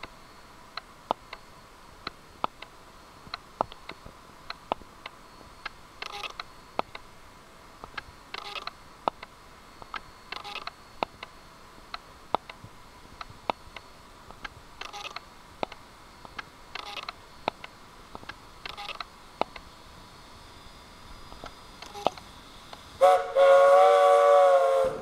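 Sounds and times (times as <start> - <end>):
rapid-fire shutter bursts: 6.0 - 6.5.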